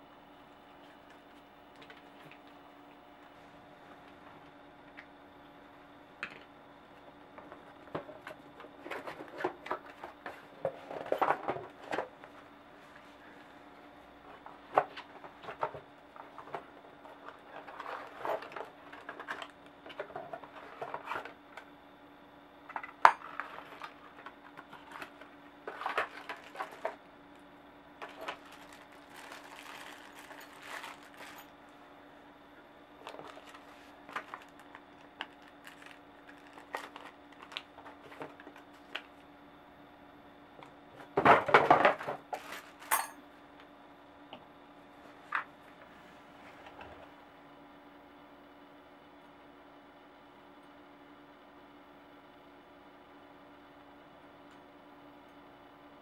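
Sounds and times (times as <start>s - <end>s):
faint steady hum: 0.0s - 56.0s
metal parts clinking in cardboard box: 42.4s - 43.2s.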